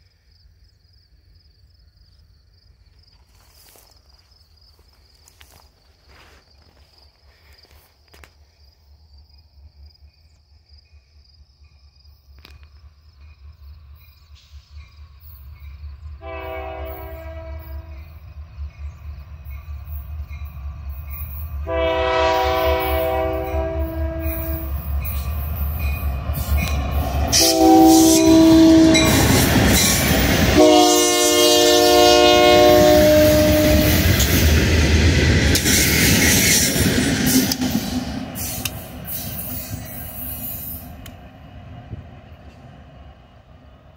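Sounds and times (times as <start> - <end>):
locomotive engine rumble: 12.4 - 43.9
locomotive air horn blasts: 16.2 - 18.0, 21.6 - 24.7, 27.3 - 29.4, 30.5 - 34.0
freight cars rolling past: 24.1 - 31.4.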